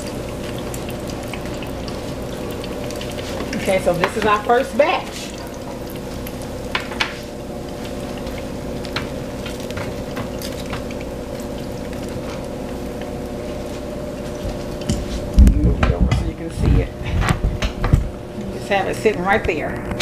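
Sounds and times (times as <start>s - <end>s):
oil sizzling with pops: 0.0s - 15.4s
steady hum: 0.0s - 20.0s.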